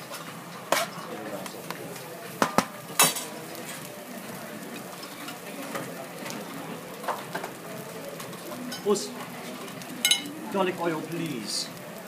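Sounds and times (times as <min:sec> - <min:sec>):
rice sizzling on a griddle: 0:00.0 - 0:12.0
sharp knock on a griddle: 0:02.4 - 0:03.2
faint clinks: 0:10.0 - 0:10.3.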